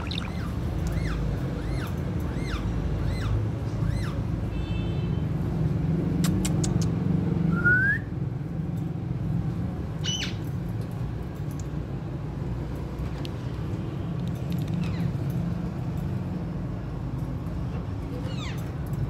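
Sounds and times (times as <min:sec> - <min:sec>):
parakeet chirping and squawking: 0:00.0 - 0:04.2, 0:10.0 - 0:10.4.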